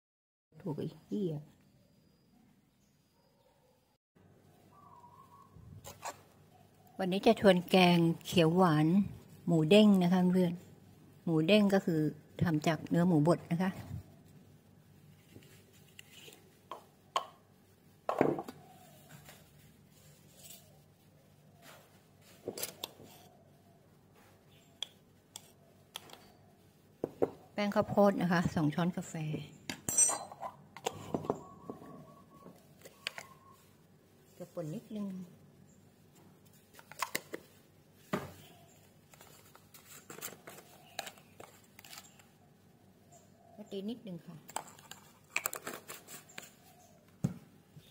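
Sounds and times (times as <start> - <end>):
metal utensils clinking: 29.8 - 30.6.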